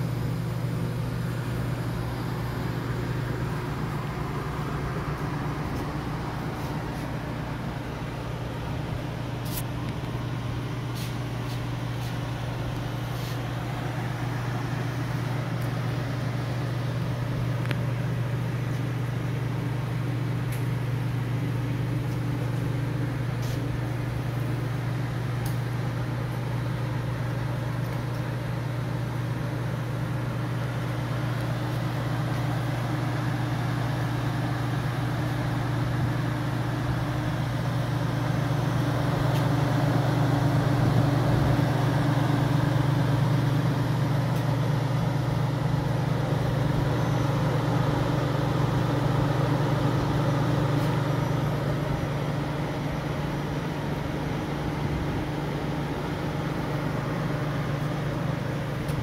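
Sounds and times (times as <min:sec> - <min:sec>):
oven fans humming: 0:00.0 - 0:59.0.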